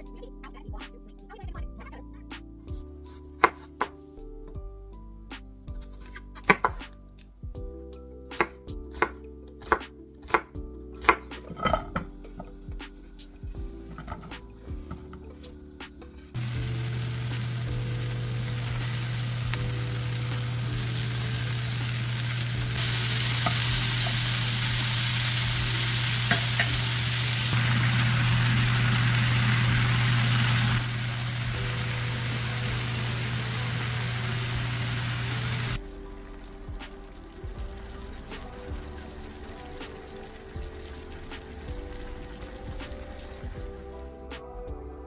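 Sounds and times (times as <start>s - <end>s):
food sizzling in a frying pan: 11.5s - 12.5s, 16.3s - 43.8s.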